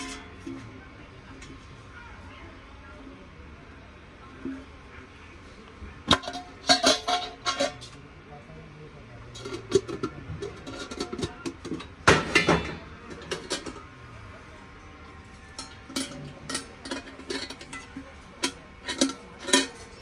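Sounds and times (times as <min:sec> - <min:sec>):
brass containers clinking: 0:00.0 - 0:00.8, 0:06.0 - 0:08.0, 0:09.3 - 0:13.9, 0:15.3 - 0:20.0.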